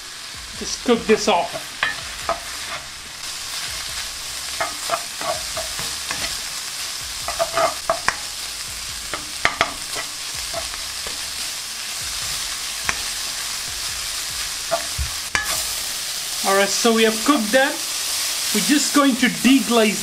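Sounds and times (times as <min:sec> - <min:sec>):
meat sizzling in a pan: 0:00.0 - 0:20.0
spatula scraping and knocking pan: 0:01.5 - 0:02.9, 0:03.7 - 0:06.5, 0:07.2 - 0:08.4, 0:09.0 - 0:15.8.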